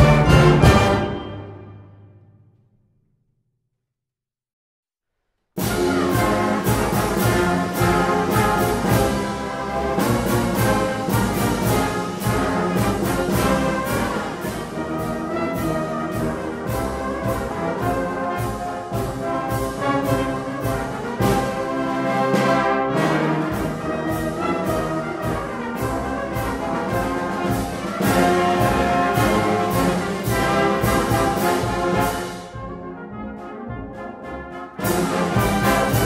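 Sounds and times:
brass band playing: 0.0 - 2.3, 5.6 - 36.0.

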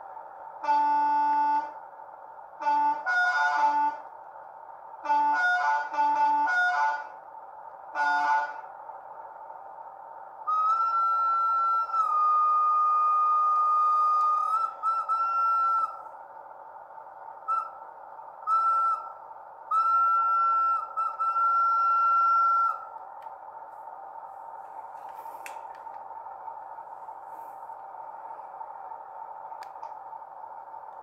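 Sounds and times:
steady hum: 0.0 - 31.0
model locomotive horn blasts: 0.6 - 1.8, 2.6 - 4.1, 5.0 - 7.2, 7.9 - 8.7, 10.5 - 16.1, 17.4 - 17.8, 18.4 - 22.9.

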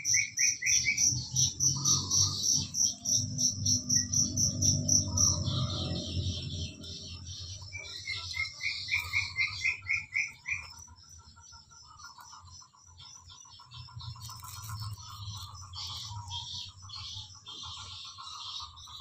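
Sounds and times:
steady pulsing animal call: 0.0 - 19.0
low rumble: 1.4 - 7.7.

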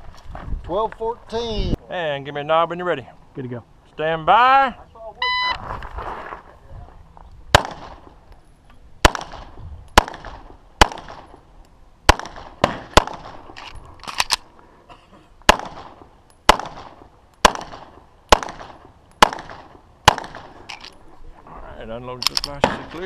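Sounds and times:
pistol shots with echo: 7.5 - 8.1, 9.0 - 11.4, 12.1 - 13.6, 15.5 - 20.6, 22.6 - 23.0.

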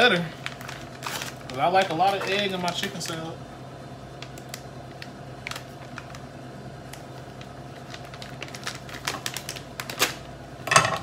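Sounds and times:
plastic pouch crinkling: 0.0 - 3.3, 4.1 - 10.3
steady hum: 0.0 - 11.0.

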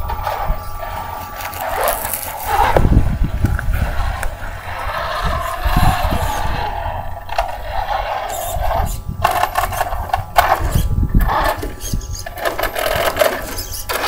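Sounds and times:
toy truck motor whining: 0.0 - 2.8, 7.4 - 14.0
dirt and gravel crunching: 0.0 - 11.5
tyres scrabbling over dirt: 0.0 - 14.0.

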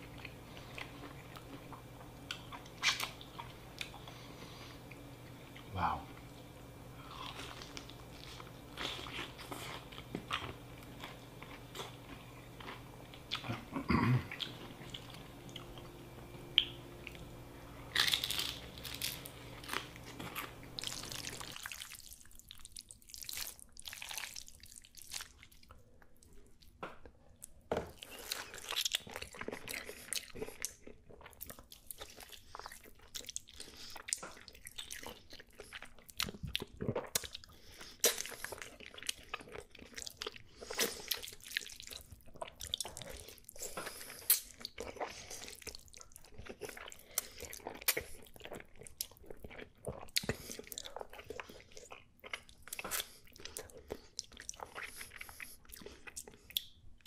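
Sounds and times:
person chewing and smacking food: 0.0 - 57.0.

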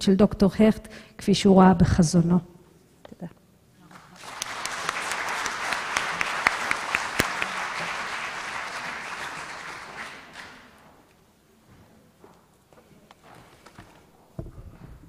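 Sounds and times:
audience applauding: 3.9 - 10.9.

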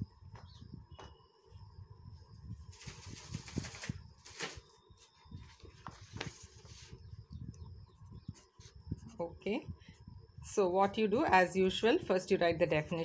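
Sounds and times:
paper rustling: 2.7 - 7.0.

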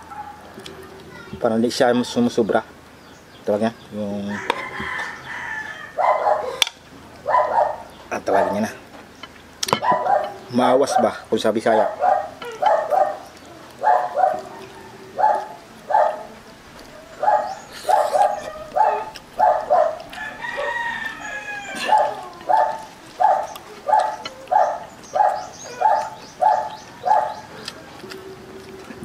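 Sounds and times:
dog barking: 0.0 - 0.5, 6.0 - 8.7, 9.8 - 27.5
rooster crowing: 4.2 - 6.6, 13.8 - 16.1, 16.9 - 27.4.

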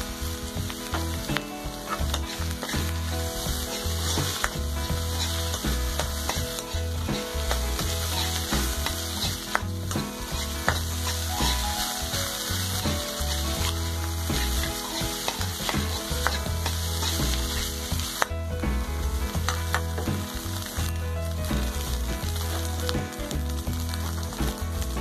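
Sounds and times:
rice sizzling in a wok: 0.1 - 18.3, 19.4 - 25.0
metal spatula scraping a wok: 1.9 - 9.7, 10.3 - 17.8.

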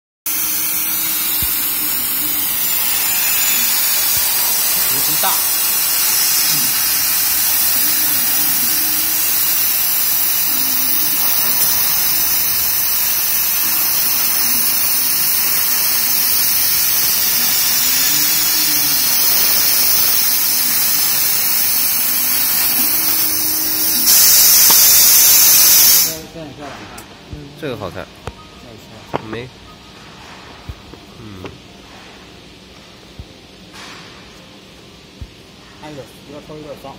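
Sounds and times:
air hissing from nozzle: 0.3 - 26.2
motor whine: 0.3 - 26.2.

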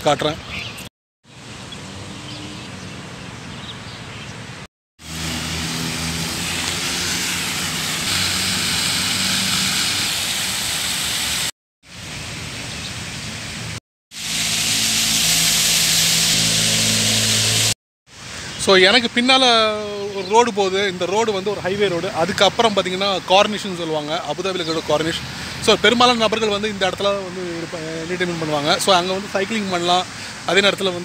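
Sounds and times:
low traffic hum: 1.3 - 31.0
fountain water splashing on paving: 5.0 - 19.8.

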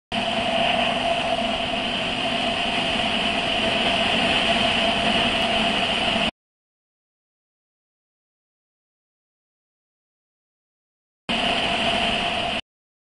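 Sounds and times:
wind rush: 0.1 - 6.3, 11.3 - 12.6.

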